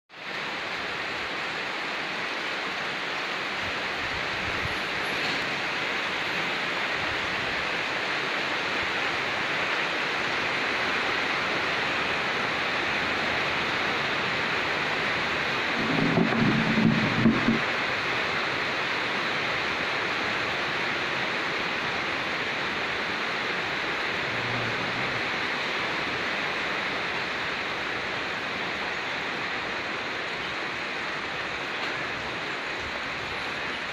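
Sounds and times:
steady rain hiss: 0.1s - 33.9s
low rumble: 15.7s - 17.7s.

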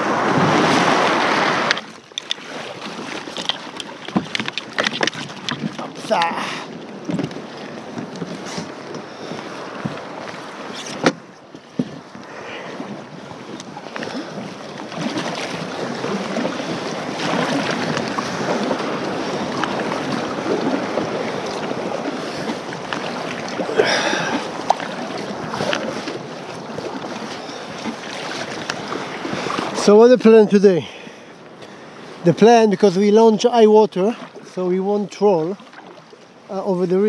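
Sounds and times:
wind on microphone: 0.0s - 1.9s
paddle strokes splashing: 0.0s - 37.0s.

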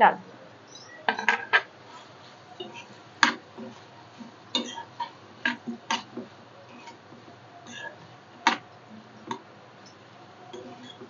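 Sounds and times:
metal spoon scraping frying pan: 1.1s - 7.0s, 7.6s - 8.6s, 10.5s - 11.0s.

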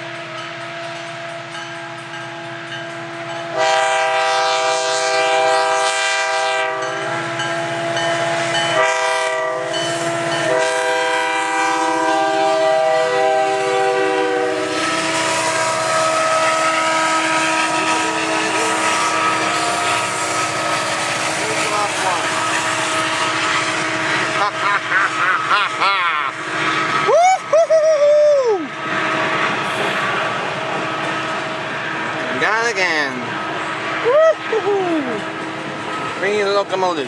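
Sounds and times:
locomotive air horn blasts: 3.0s - 24.8s, 26.4s - 27.1s
locomotive engine rumble: 6.6s - 37.0s.

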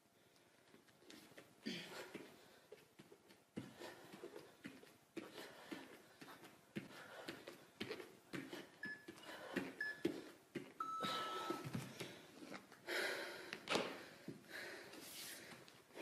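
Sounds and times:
heavy breathing: 0.2s - 16.0s
interval timer beeps: 8.8s - 11.7s.

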